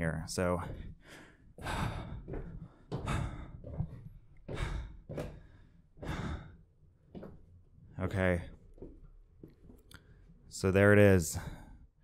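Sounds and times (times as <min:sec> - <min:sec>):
footsteps on wooden stairs: 0:00.0 - 0:09.9
person breathing: 0:00.6 - 0:06.7, 0:11.3 - 0:12.0.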